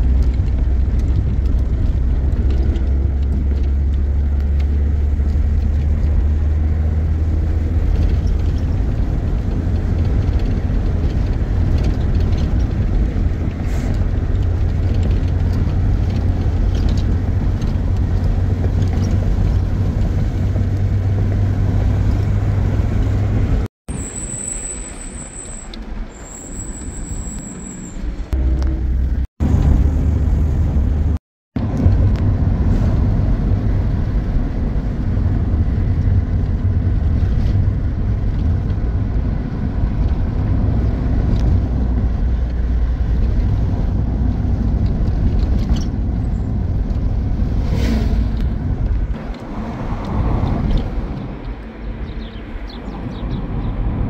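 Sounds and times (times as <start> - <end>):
car engine and road rumble: 0.0 - 54.0
thin high whistle: 23.9 - 28.1.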